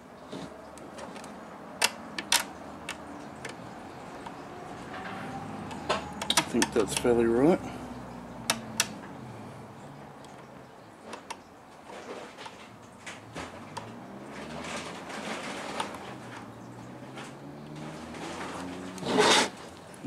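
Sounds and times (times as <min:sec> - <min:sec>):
plastic parts clicking: 0:00.8 - 0:03.6, 0:05.6 - 0:07.1.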